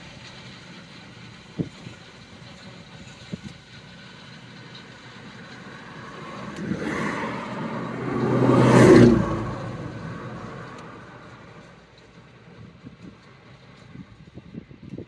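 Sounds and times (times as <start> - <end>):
vehicle passing by: 4.8 - 11.8.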